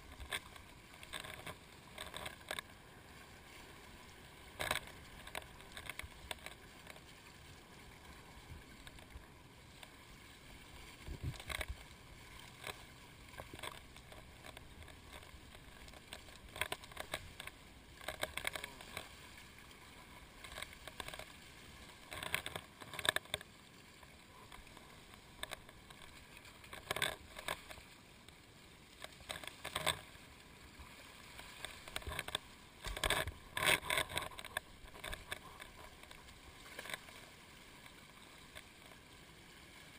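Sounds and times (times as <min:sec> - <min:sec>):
water splashing against camera housing: 0:04.6 - 0:07.0, 0:11.0 - 0:11.8, 0:13.4 - 0:19.0, 0:22.0 - 0:23.5, 0:24.4 - 0:27.8, 0:31.6 - 0:37.1.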